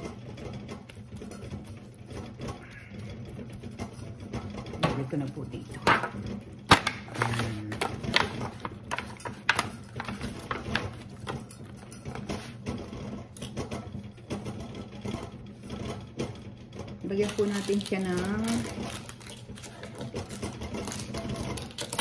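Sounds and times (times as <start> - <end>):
foil pan crinkling and knocking: 3.5 - 22.0.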